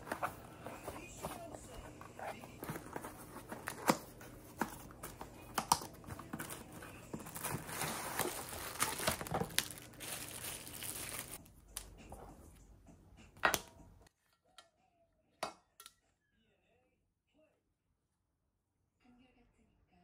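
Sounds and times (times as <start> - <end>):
plastic wrapping crinkling: 0.0 - 11.4
cardboard box being opened: 6.0 - 11.4.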